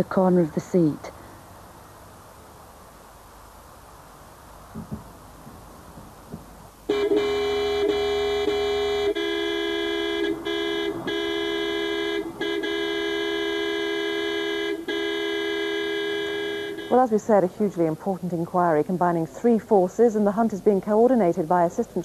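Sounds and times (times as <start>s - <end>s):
car horn blast: 6.9s - 17.0s.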